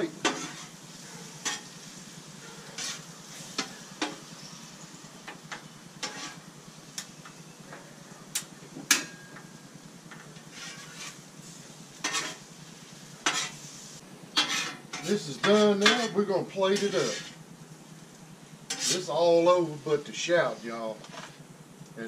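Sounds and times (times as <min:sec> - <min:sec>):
food sizzling on a griddle: 0:00.0 - 0:07.5, 0:08.9 - 0:19.8
metal spatula scraping cooktop: 0:00.2 - 0:00.8, 0:02.6 - 0:04.2, 0:06.0 - 0:06.4, 0:10.4 - 0:12.5, 0:13.2 - 0:13.7, 0:14.4 - 0:17.4, 0:18.7 - 0:19.1.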